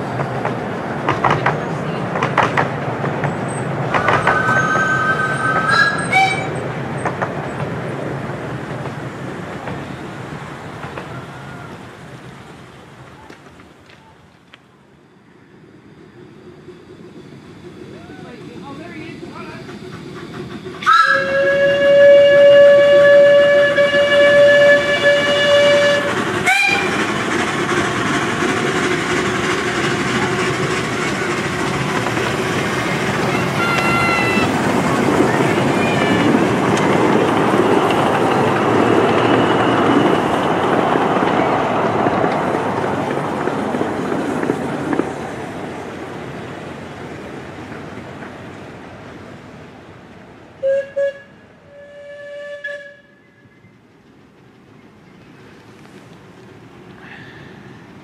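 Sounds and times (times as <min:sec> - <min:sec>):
train wheels clicking over rail joints: 0:00.0 - 0:14.7, 0:17.4 - 0:49.1
steam locomotive whistle: 0:04.0 - 0:06.6, 0:20.8 - 0:27.1, 0:33.2 - 0:34.6, 0:35.6 - 0:36.5, 0:50.6 - 0:53.5
steam whistle chord: 0:20.9 - 0:27.0.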